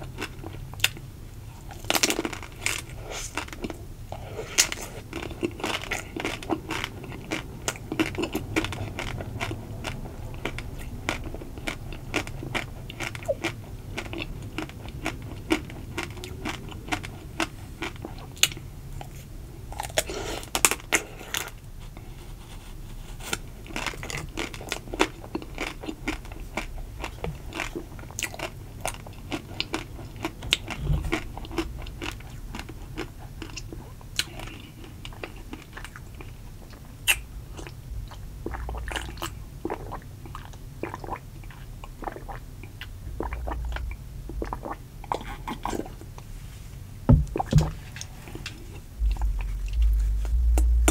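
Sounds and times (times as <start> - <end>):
biting and chewing: 1.6 - 21.6, 23.2 - 46.1.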